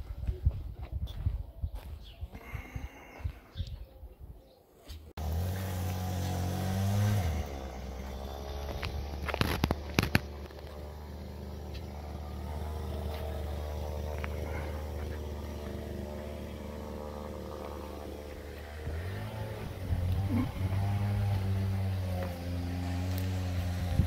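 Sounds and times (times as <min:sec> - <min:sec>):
car engine idling: 0:07.2 - 0:21.2.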